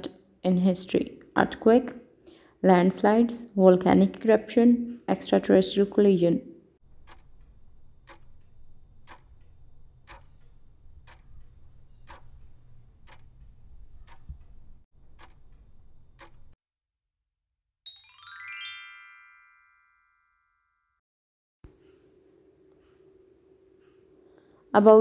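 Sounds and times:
countdown timer ticking: 0:06.9 - 0:16.6
bright rising chime: 0:17.9 - 0:20.9.

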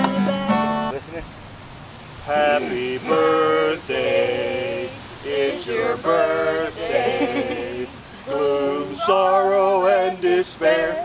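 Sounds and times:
group singing unaccompanied: 0:02.2 - 0:11.0
man singing lead: 0:02.3 - 0:11.0.

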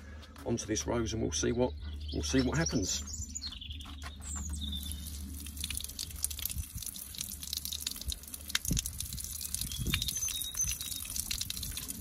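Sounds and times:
droplets dripping on leaves: 0:04.6 - 0:12.0.

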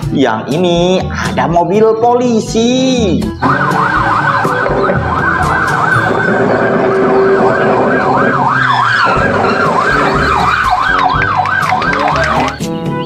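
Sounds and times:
toy siren wailing: 0:03.4 - 0:12.6.

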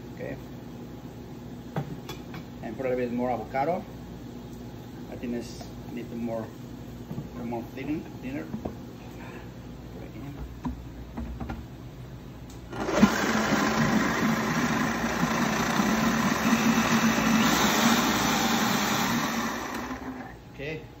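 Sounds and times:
blender running: 0:12.7 - 0:20.4.

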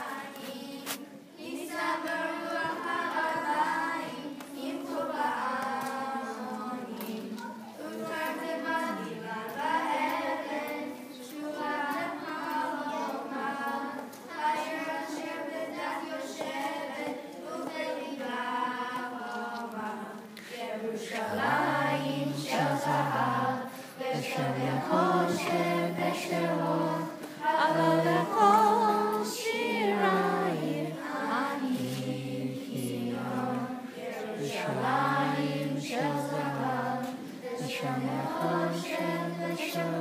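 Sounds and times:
children singing together: 0:00.0 - 0:40.0.

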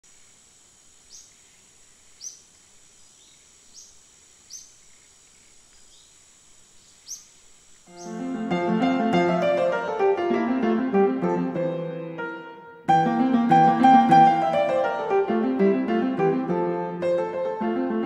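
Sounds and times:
bird chirping: 0:01.0 - 0:08.4
instrumental music with plucked notes: 0:08.0 - 0:18.0.

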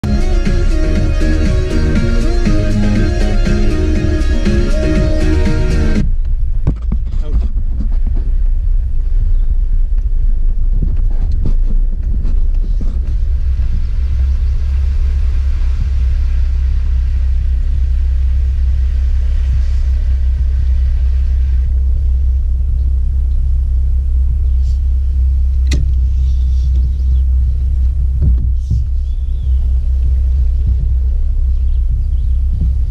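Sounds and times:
vehicle rumbling on dirt road: 0:00.0 - 0:32.9
vehicle knocking over bumps: 0:28.1 - 0:29.0.

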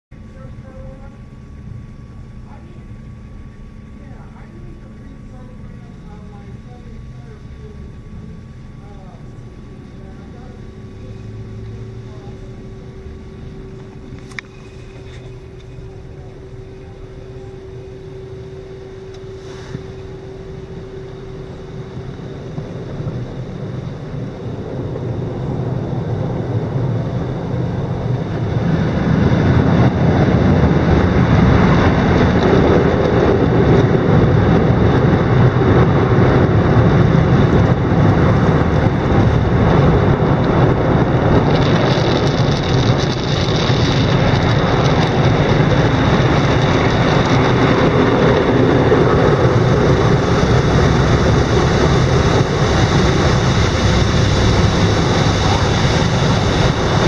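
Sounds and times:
machine hum: 0:00.1 - 0:57.0
water spray rushing: 0:49.1 - 0:57.0.

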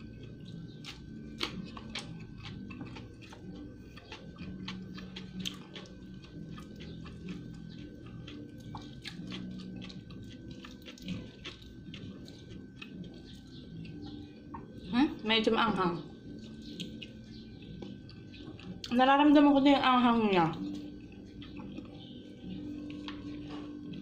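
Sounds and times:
person chewing food: 0:00.0 - 0:14.9, 0:16.1 - 0:18.9, 0:20.5 - 0:24.0
low background hum: 0:00.0 - 0:24.0.

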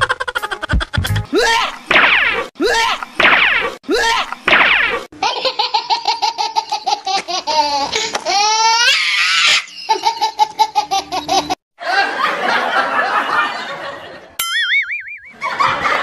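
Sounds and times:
laughter sound effects: 0:00.0 - 0:01.6, 0:09.7 - 0:14.4, 0:15.3 - 0:16.0.

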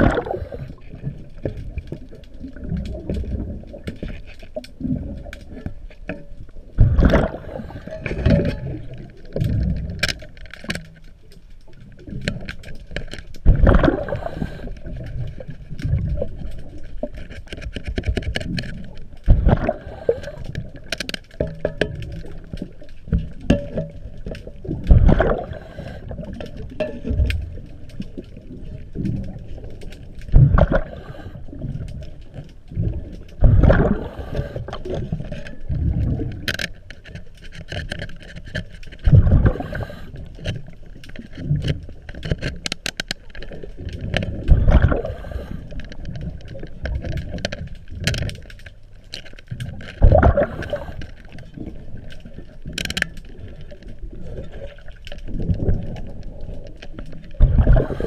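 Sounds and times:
regulator bubbles gurgling: 0:00.0 - 0:10.4, 0:11.7 - 0:17.2, 0:18.5 - 0:36.7, 0:39.0 - 0:42.2, 0:43.5 - 0:48.1, 0:49.6 - 0:58.0
clicks and scraping of tools: 0:07.6 - 0:13.4, 0:14.2 - 0:24.6, 0:34.0 - 0:44.3.

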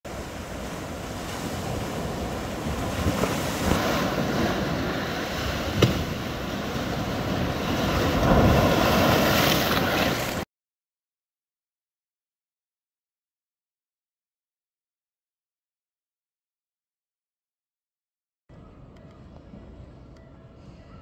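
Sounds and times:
surf breaking on rocks: 0:00.1 - 0:10.4.

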